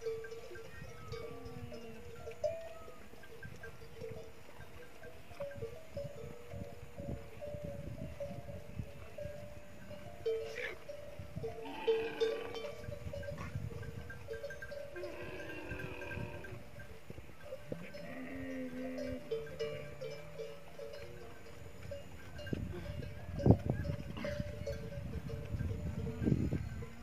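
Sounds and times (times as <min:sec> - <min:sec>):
camels calling: 0:00.0 - 0:27.0
bell clanking: 0:09.2 - 0:27.0.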